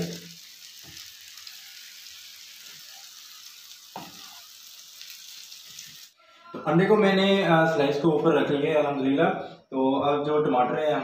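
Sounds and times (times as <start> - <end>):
egg sizzling on griddle: 0.0 - 6.2.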